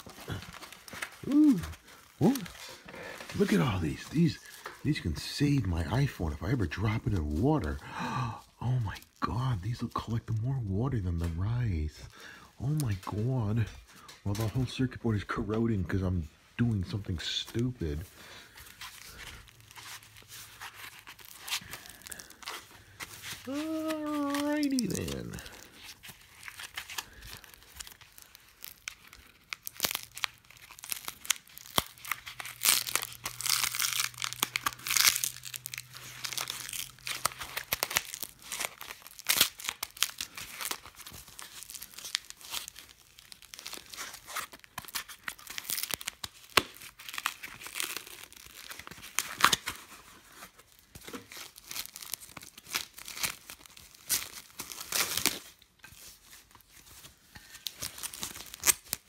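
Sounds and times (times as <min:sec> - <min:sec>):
plastic wrapping crinkling and tearing: 0:00.0 - 0:12.0, 0:12.6 - 0:59.0.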